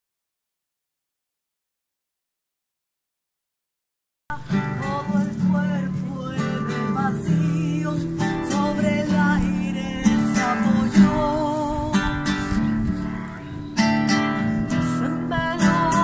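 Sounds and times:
acoustic guitar strumming: 0:04.3 - 0:16.0.

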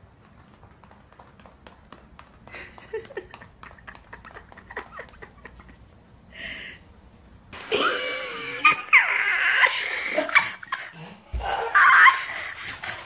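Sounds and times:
dog paws tapping on hard floor: 0:00.0 - 0:05.8.

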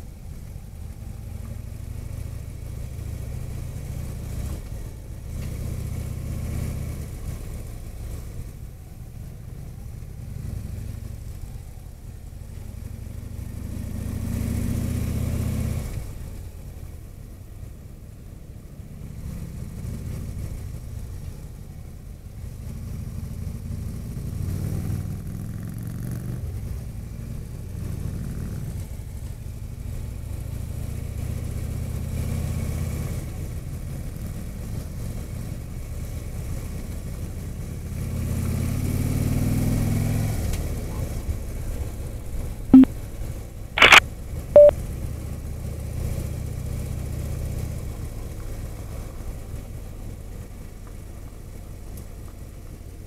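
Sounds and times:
road noise: 0:00.0 - 0:53.0
short sharp sounds: 0:43.8 - 0:44.0.

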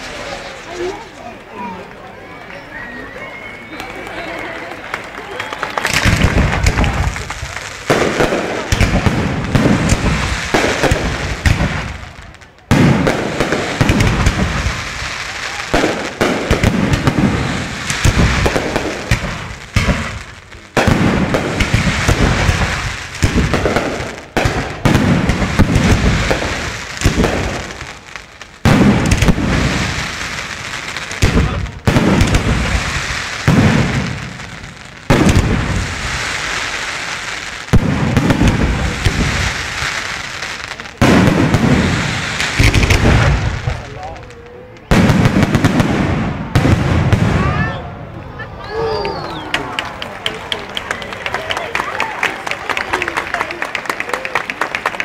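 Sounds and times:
firework shells bursting: 0:05.8 - 0:47.3.

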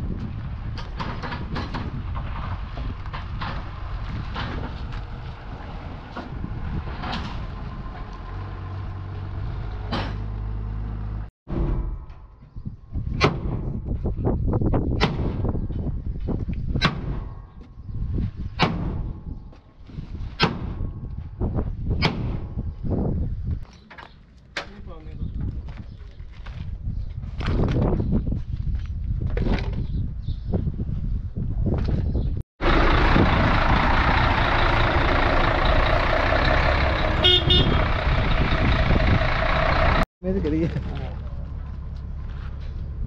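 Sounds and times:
truck diesel engine running: 0:32.6 - 0:40.1
low rumble: 0:32.6 - 0:43.0.

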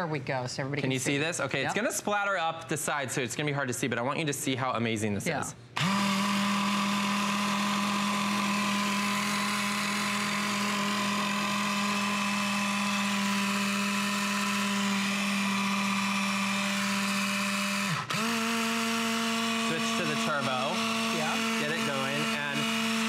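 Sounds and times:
hand blender motor running: 0:05.8 - 0:23.0.

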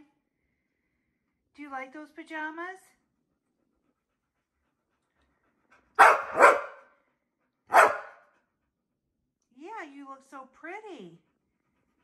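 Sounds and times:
dog barking: 0:06.0 - 0:06.9, 0:07.7 - 0:08.2.

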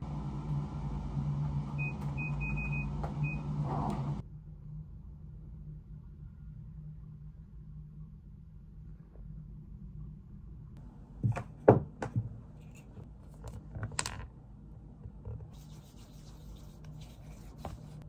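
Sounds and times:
objects knocking on desk: 0:11.2 - 0:12.3
rustling and rubbing: 0:15.4 - 0:18.0.

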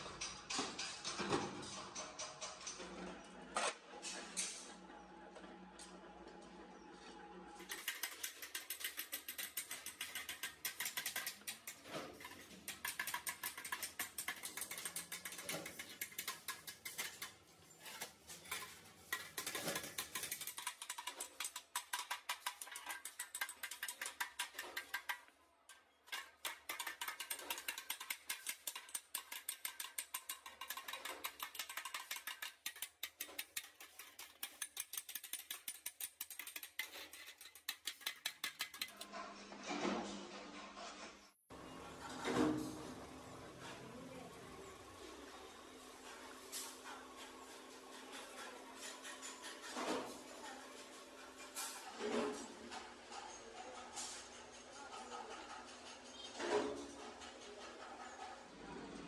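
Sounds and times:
hammer tapping sheet metal: 0:07.7 - 0:39.0.

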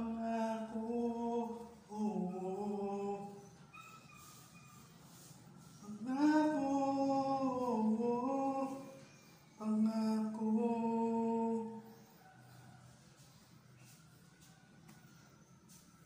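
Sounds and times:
person singing unaccompanied: 0:00.0 - 0:04.4, 0:05.6 - 0:12.0.

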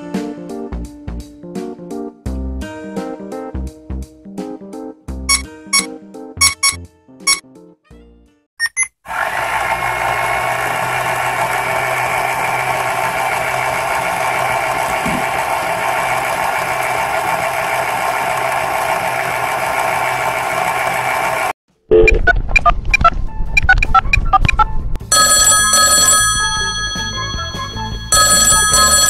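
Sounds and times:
short electronic beeps: 0:05.3 - 0:07.4, 0:08.6 - 0:09.0, 0:21.9 - 0:24.6
toy washing machine motor: 0:09.1 - 0:21.6, 0:25.1 - 0:29.0.

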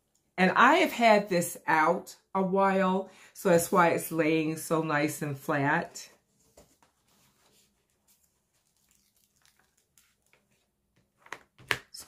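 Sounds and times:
plastic film crinkling: 0:07.4 - 0:10.8.

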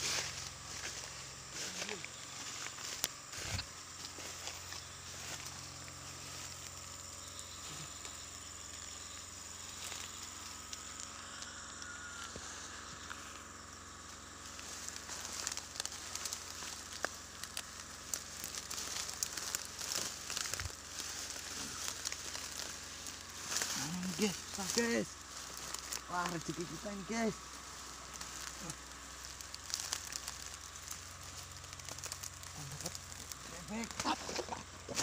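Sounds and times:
undergrowth rustling and crackling: 0:00.0 - 0:35.0.

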